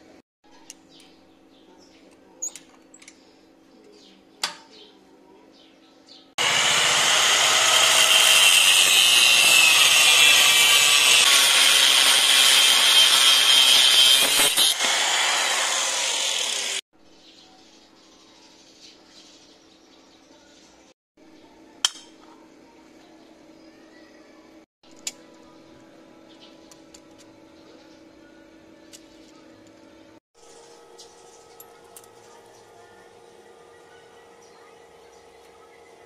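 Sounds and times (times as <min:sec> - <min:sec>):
angle grinder cutting steel: 0:06.4 - 0:16.8.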